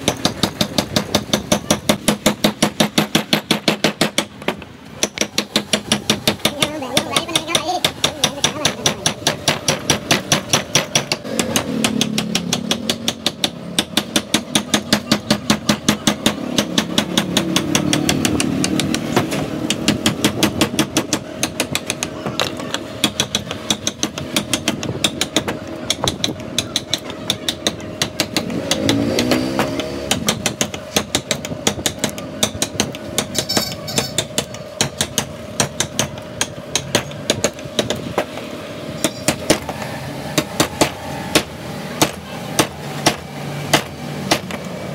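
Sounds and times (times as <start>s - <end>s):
steady background hum: 0.0s - 44.9s
mallet tapping chisel into wood: 2.5s - 38.0s.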